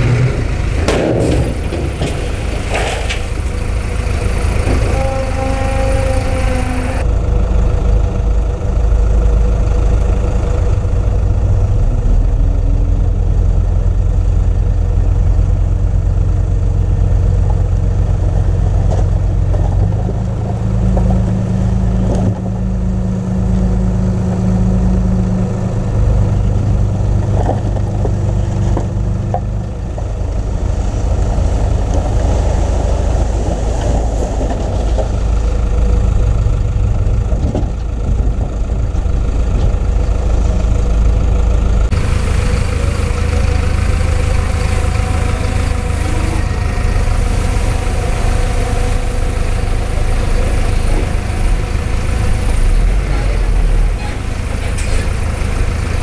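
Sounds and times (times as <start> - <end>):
metal clanks: 0.0 - 3.6
heavy machinery engines running: 0.0 - 56.0.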